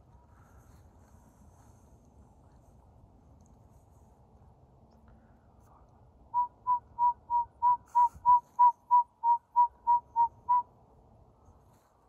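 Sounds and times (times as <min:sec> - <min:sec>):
owl whistled toots: 0:06.4 - 0:10.6.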